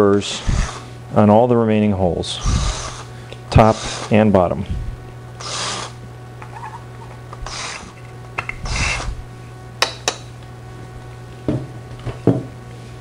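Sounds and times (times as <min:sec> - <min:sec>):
steady low hum: 0:00.0 - 0:13.0
drill bit scraping metal: 0:02.4 - 0:04.2, 0:05.4 - 0:06.0, 0:07.4 - 0:08.0, 0:08.6 - 0:09.2.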